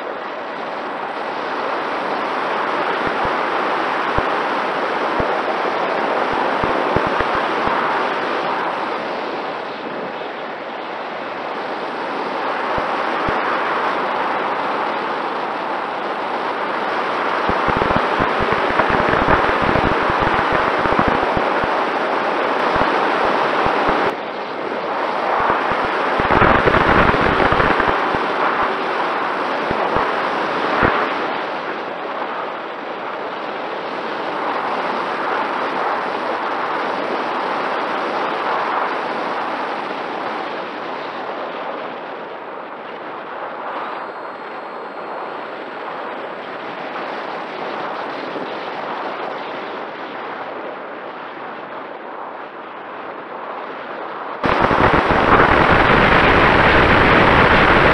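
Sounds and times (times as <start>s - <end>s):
wind rushing on microphone: 0.0s - 57.9s
wind buffeting pops and thumps: 6.3s - 7.9s, 17.4s - 21.8s, 25.3s - 28.7s, 54.4s - 57.9s
electric motor and propeller whine: 16.2s - 31.1s, 54.4s - 57.9s.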